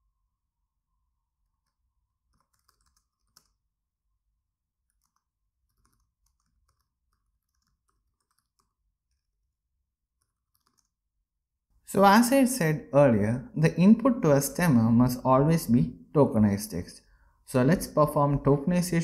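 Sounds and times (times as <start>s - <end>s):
keyboard typing: 1.5s - 3.7s, 4.8s - 11.1s.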